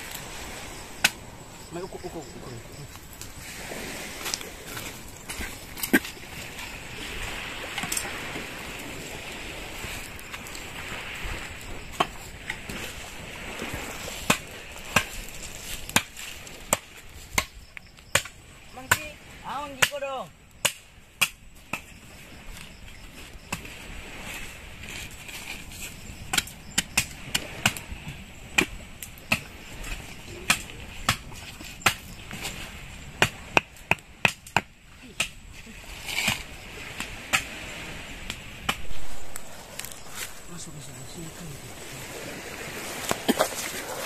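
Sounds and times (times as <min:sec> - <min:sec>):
wood being chopped: 0:01.0 - 0:01.2, 0:14.2 - 0:15.3, 0:15.9 - 0:19.1, 0:20.6 - 0:21.9, 0:26.3 - 0:27.8, 0:28.6 - 0:29.5, 0:30.4 - 0:32.1, 0:33.2 - 0:35.4, 0:36.2 - 0:37.6, 0:38.2 - 0:40.3.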